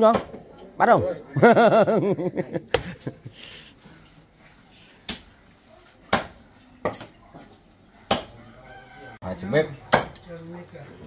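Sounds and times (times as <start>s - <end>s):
knife chopping meat and bone: 6.1s - 7.1s, 8.1s - 8.3s, 9.9s - 10.2s.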